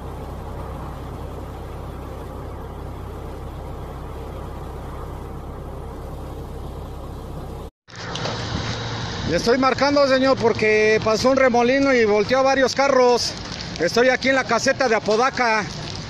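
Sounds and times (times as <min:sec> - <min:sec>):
diesel truck engine idling: 0:00.0 - 0:07.7.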